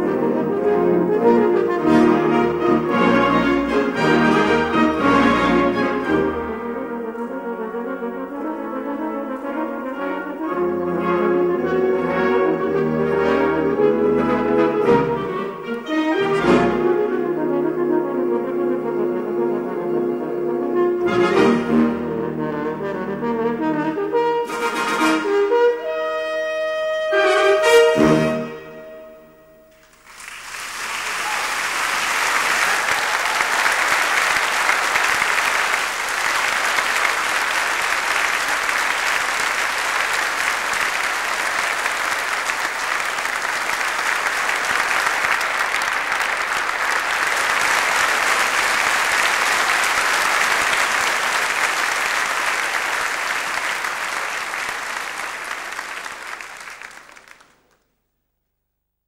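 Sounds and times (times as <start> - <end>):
audience applauding: 29.8 - 57.9.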